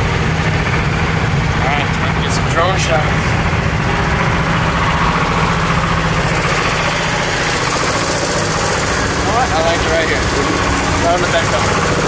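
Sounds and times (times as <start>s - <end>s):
engine idling: 0.0s - 12.0s.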